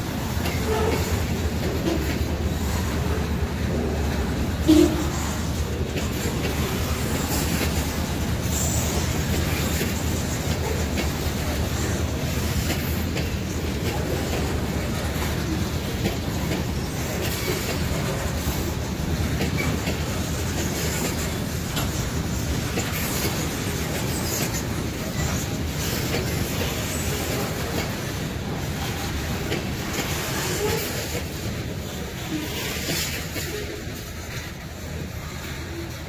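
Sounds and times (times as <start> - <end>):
freight train wheels clacking: 0.0 - 36.0.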